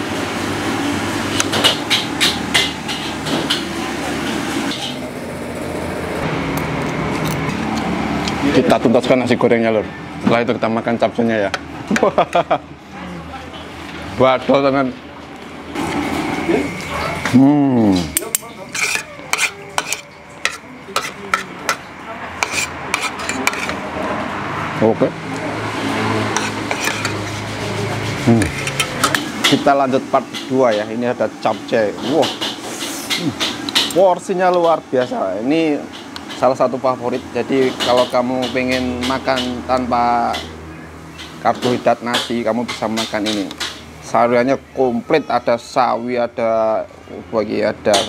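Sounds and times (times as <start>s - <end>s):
cutlery scraping a ceramic plate: 18.2s - 23.8s, 26.3s - 29.6s.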